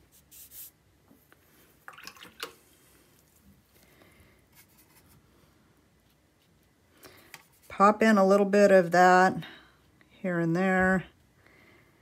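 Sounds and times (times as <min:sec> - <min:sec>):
paintbrush swishing in palette: 0:00.0 - 0:00.8.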